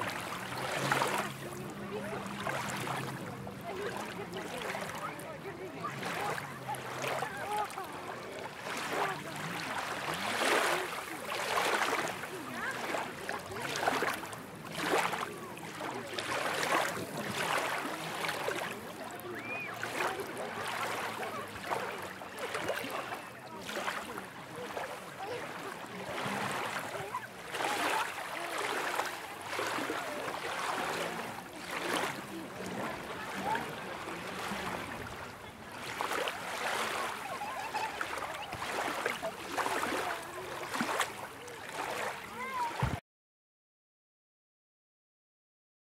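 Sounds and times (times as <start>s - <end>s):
crowd chatter: 0.0s - 43.0s
surf washing onto shore: 0.0s - 43.0s.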